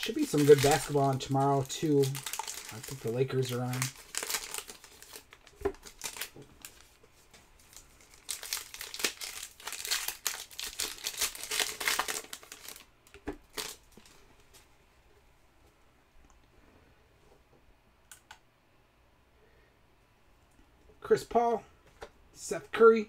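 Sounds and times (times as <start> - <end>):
foil wrapper crinkling and tearing: 0.0 - 7.0, 7.6 - 14.1.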